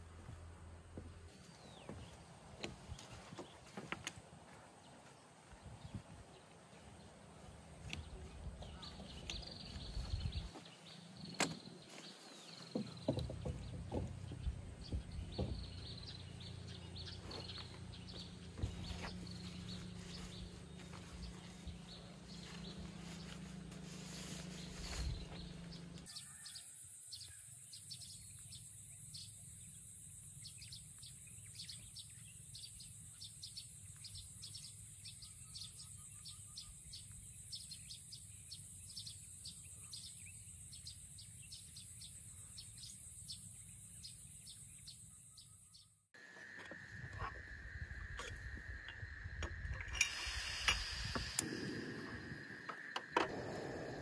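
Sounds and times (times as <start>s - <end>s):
camping gear rustling: 1.1s - 14.4s, 15.0s - 26.1s, 46.2s - 54.0s
bird chirps: 7.8s - 29.8s, 30.4s - 54.0s
low hum: 14.1s - 26.1s, 46.2s - 54.0s.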